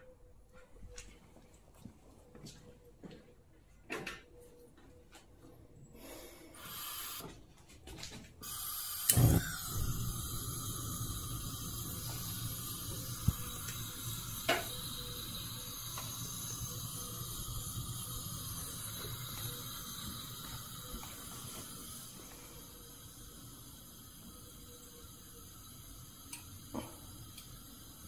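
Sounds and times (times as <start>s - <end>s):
gas flame rumble and hiss: 6.0s - 7.3s, 8.4s - 28.0s
igniter clicks: 8.4s - 21.8s, 26.2s - 26.6s, 27.3s - 27.7s
gas catching pop: 8.7s - 15.0s.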